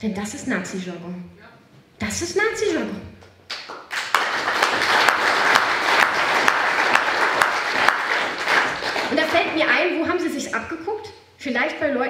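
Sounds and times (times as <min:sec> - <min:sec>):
audience applauding: 0:03.5 - 0:09.7.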